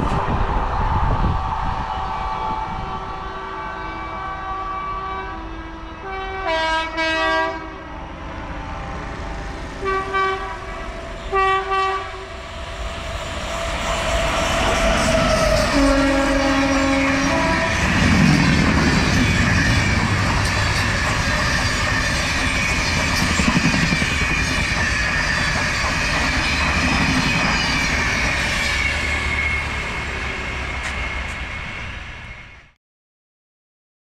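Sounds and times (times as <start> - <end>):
train coaches rumbling past: 0.0 - 32.8
locomotive horn: 2.6 - 9.1, 9.8 - 12.4, 15.1 - 17.9.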